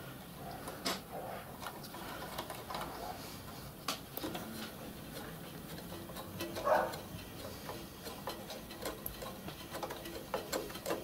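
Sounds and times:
small metal fittings clicking: 4.2s - 11.0s.

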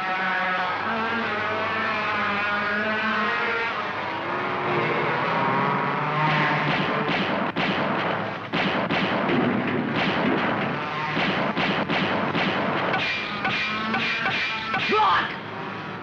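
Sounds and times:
continuous rushing noise: 6.6s - 16.0s
cartoon rifle gunshots: 6.7s - 15.3s.

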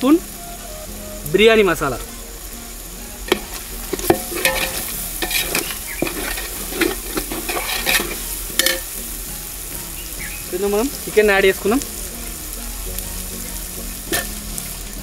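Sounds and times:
sizzling in oil: 0.0s - 15.0s
ladle clacking against pot: 3.3s - 8.9s
ladle scraping a pot: 3.3s - 8.9s.

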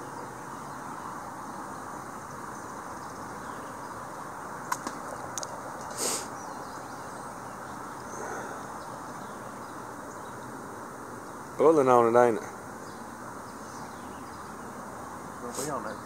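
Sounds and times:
river ambience hiss: 0.0s - 16.0s
sharp clicks: 4.7s - 5.6s.

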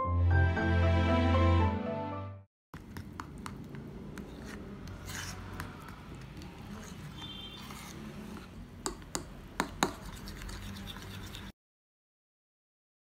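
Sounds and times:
fork scraping batter in bowl: 2.8s - 11.6s.

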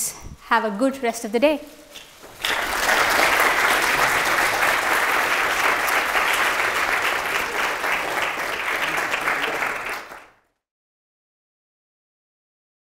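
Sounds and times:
audience applauding: 2.3s - 10.4s.

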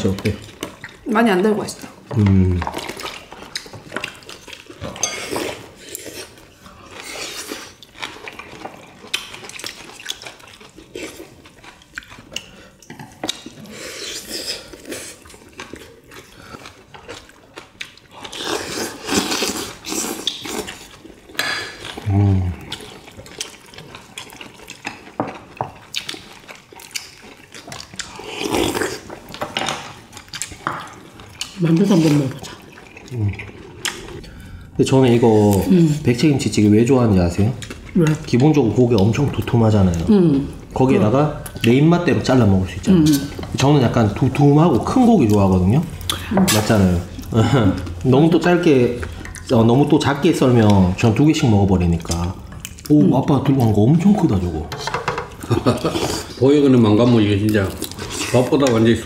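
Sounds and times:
person humming: 2.1s - 2.6s, 22.1s - 22.6s
slurping: 2.1s - 17.4s, 18.0s - 29.4s, 30.3s - 36.4s.

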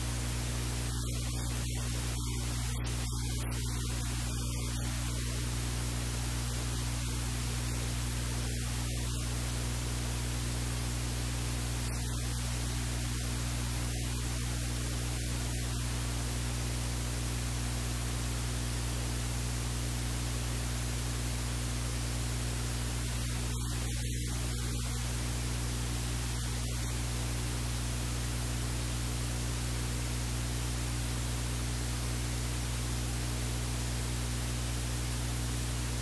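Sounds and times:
low electrical hum: 0.0s - 36.0s
static hiss: 0.0s - 36.0s.

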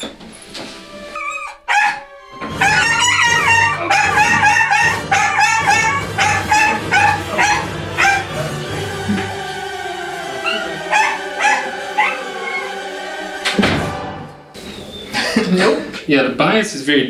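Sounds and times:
background music: 0.1s - 15.6s
small dog barking: 1.7s - 2.0s, 2.7s - 8.3s.

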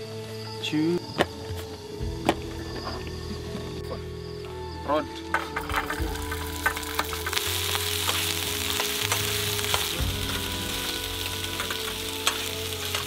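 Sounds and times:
meat sizzling in hot oil: 5.6s - 13.0s.

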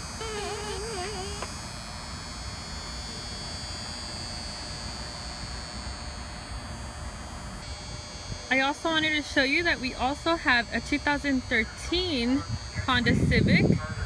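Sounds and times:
wavering pitched sound: 0.0s - 1.5s
high-pitched buzz: 0.0s - 14.0s.

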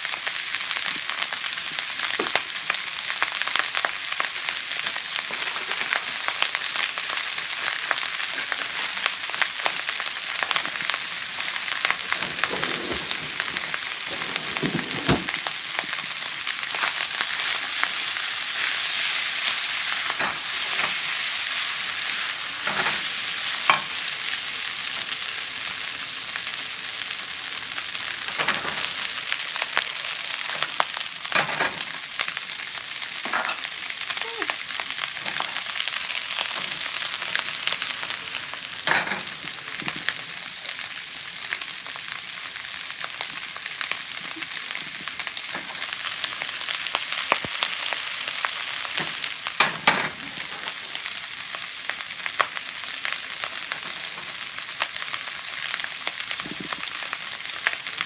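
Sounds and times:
fried rice sizzling in a pan: 0.0s - 58.0s
plastic spatula scraping a pan: 11.9s - 15.4s.

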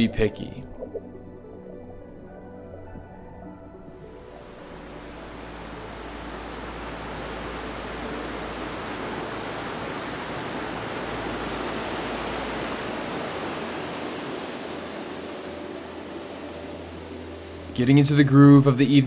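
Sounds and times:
whitewater rapids rushing: 4.4s - 16.4s.

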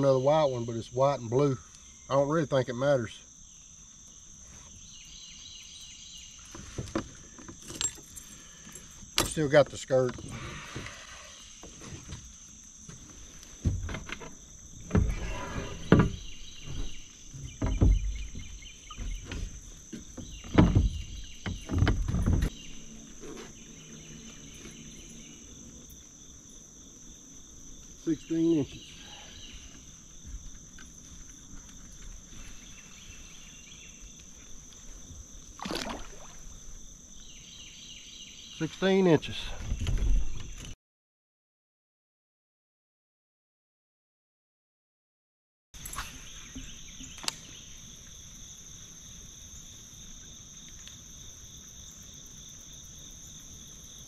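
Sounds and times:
high insect drone: 0.0s - 40.7s, 45.8s - 54.0s
knocks against a kayak: 15.8s - 22.5s.

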